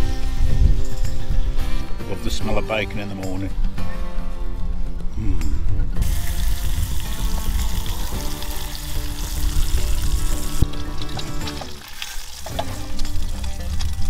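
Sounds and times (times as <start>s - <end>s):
bacon sizzling in pan: 6.0s - 14.0s.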